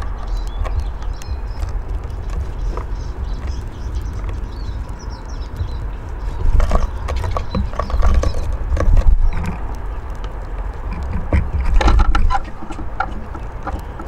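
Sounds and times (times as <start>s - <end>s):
bird chirps: 0.0s - 8.5s
birds tapping and pecking on wood: 0.0s - 14.0s
steady low rumble: 0.0s - 14.0s.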